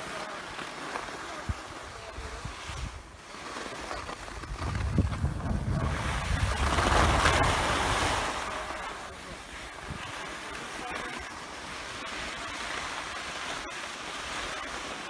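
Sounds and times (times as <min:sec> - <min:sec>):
skis scraping over snow: 0:00.0 - 0:15.0
wind rumbling on microphone: 0:01.4 - 0:03.2, 0:03.8 - 0:10.6.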